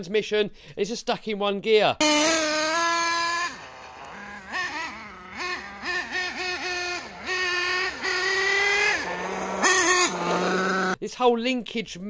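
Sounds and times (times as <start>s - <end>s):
rc truck engine revving: 2.0s - 11.0s.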